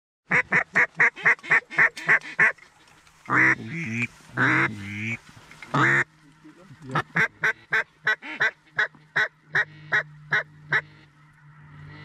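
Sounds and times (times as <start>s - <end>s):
duck-like quacking: 0.3s - 2.6s, 3.3s - 6.1s, 6.8s - 11.1s.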